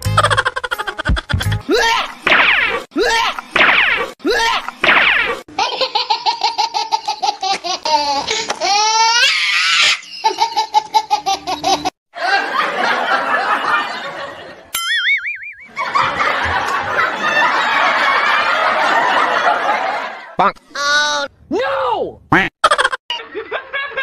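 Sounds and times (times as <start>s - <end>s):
person laughing: 0.1s - 2.2s, 22.4s - 24.0s
warbling whistle sound effect: 14.8s - 15.8s.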